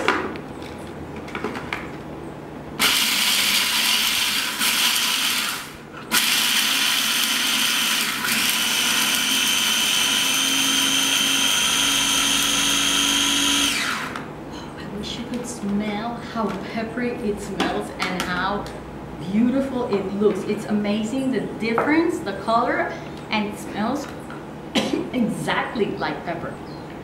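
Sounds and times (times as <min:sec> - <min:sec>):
electric food chopper whining: 0:02.8 - 0:14.3.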